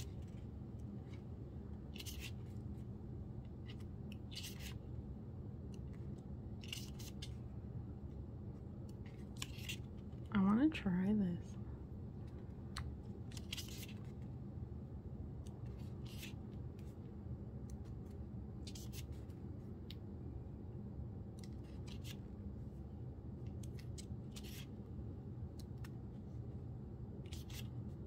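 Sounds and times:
paper pages turning: 0.0 - 4.9, 5.7 - 7.5, 8.8 - 10.3, 12.2 - 14.3, 15.4 - 20.0, 21.4 - 22.3, 23.5 - 24.9, 27.2 - 28.0
steady low hum: 0.0 - 28.0.

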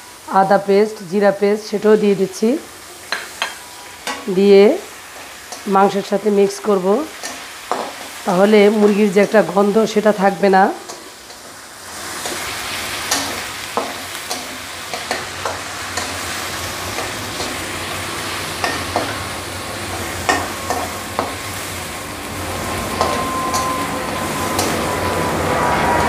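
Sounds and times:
chicken sizzling in hot oil: 0.0 - 26.0
spatula scraping metal pan: 22.5 - 26.0.

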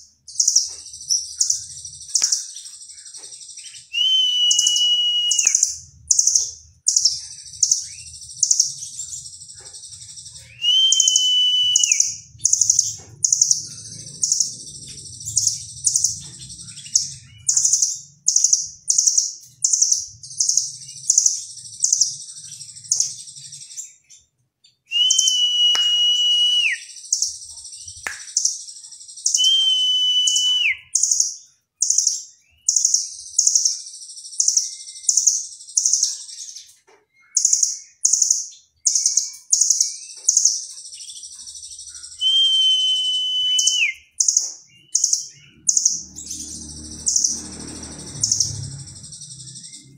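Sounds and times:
bird chirping rapidly: 0.2 - 24.0, 25.0 - 49.9
bird whistle dropping in pitch: 4.0 - 5.7, 10.6 - 12.1, 24.9 - 26.8, 29.4 - 30.8, 42.2 - 44.0.

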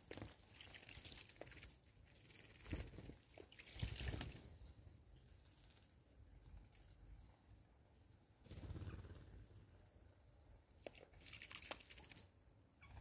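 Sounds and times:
birds splashing in water: 0.0 - 4.4, 10.8 - 12.2
wings fluttering in water: 0.0 - 4.7, 10.8 - 13.0.

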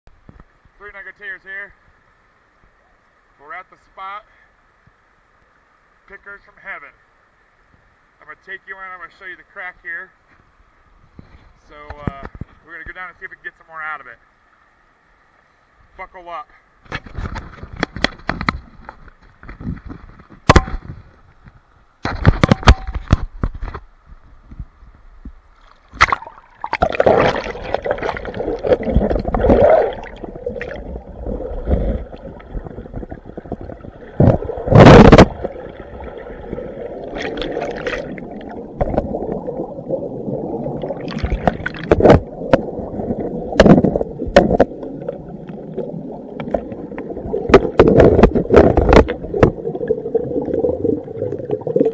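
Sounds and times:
water splashing: 25.6 - 51.9
muffled underwater river rush: 25.9 - 51.9
gurgling bubbles: 26.0 - 51.9.

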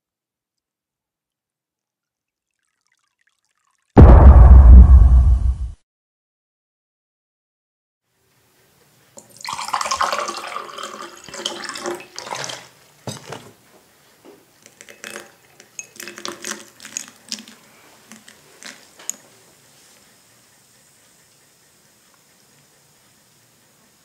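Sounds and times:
water poured into a glass: 2.4 - 3.9, 9.2 - 12.7, 14.7 - 18.9
effervescent powder fizzing: 14.7 - 19.2.

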